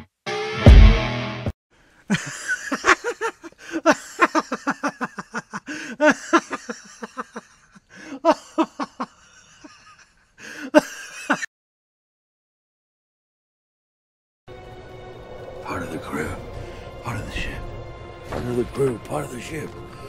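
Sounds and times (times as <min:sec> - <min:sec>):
person laughing hard: 0:02.1 - 0:11.5.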